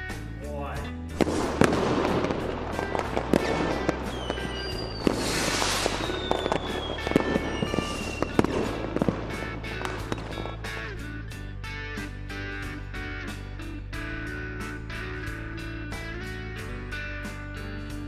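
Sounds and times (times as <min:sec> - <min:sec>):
background music: 0:00.0 - 0:18.0
fireworks bangs and pops: 0:01.1 - 0:11.1
fireworks crackle: 0:01.1 - 0:11.1
falling whistles: 0:04.0 - 0:08.9.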